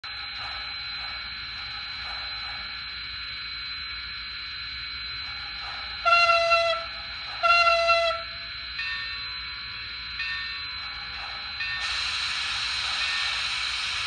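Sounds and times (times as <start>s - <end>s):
steam whistle blasts: 6.0s - 8.5s
steam locomotive idling hiss: 11.0s - 14.0s.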